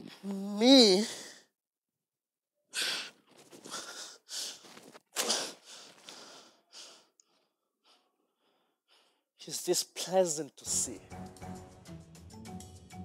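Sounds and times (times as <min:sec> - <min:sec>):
man breathing heavily: 0:02.8 - 0:09.3.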